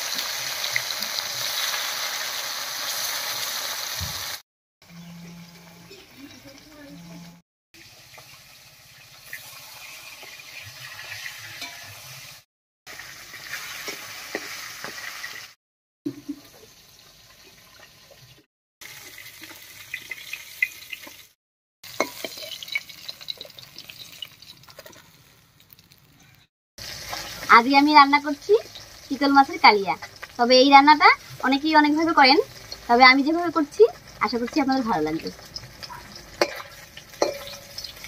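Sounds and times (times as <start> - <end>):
fish sizzling in hot oil: 0.0 - 4.4, 7.8 - 38.0
metal spatula scraping pan: 10.6 - 12.2, 35.4 - 38.0.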